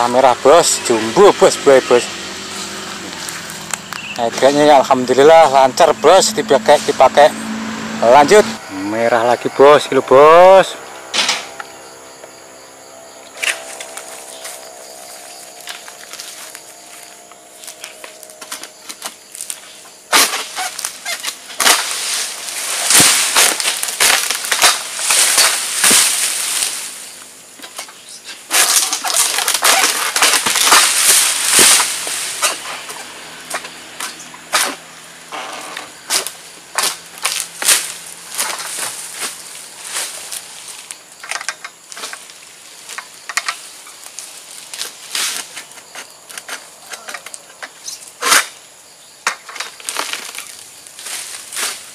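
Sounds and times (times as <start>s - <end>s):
dry leaves rustling and crackling: 13.6s - 34.1s, 36.0s - 45.9s, 49.4s - 51.9s.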